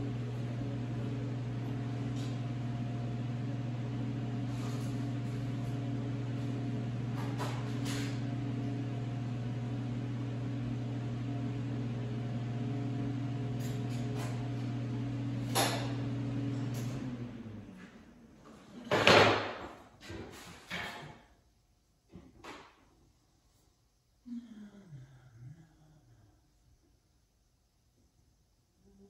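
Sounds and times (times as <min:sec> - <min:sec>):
low machine hum: 0:00.0 - 0:18.8.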